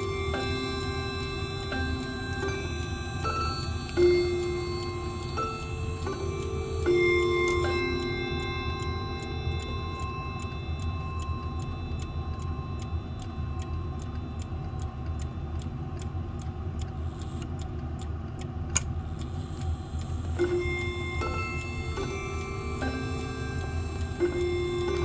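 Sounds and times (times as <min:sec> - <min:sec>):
chime rods ringing: 0:00.0 - 0:15.2, 0:20.3 - 0:25.0
clock click: 0:00.0 - 0:25.0
mantel clock ticking: 0:00.0 - 0:25.0.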